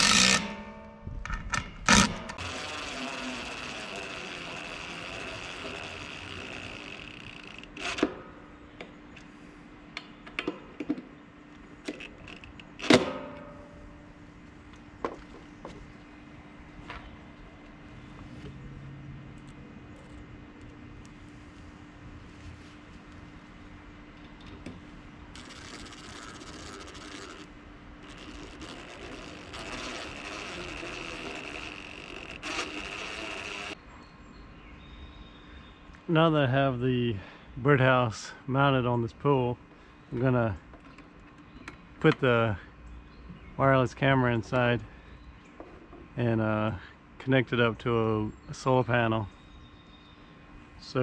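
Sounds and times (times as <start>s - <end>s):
cordless drill whine: 0.0s - 0.5s, 1.9s - 8.1s, 25.4s - 33.8s.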